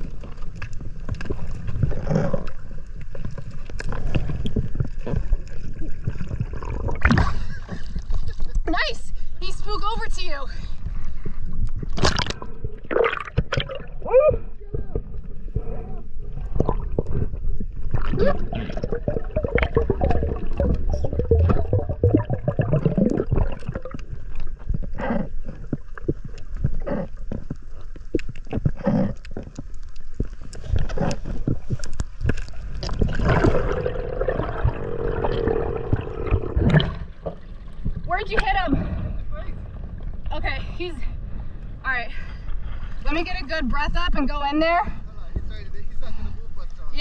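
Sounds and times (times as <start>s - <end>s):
scattered clicks and crackles: 0.0s - 7.1s, 22.9s - 33.6s
underwater bubbles gurgling: 0.0s - 8.6s, 11.2s - 40.3s
rushing water with low rumble: 0.0s - 47.0s.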